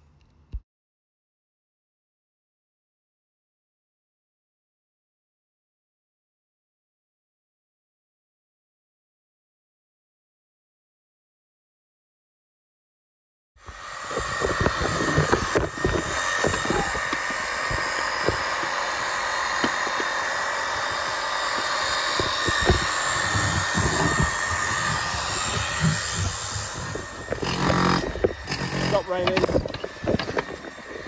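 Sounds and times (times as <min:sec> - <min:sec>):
demolition hammer running: 0:13.7 - 0:31.0
falling render: 0:13.9 - 0:30.6.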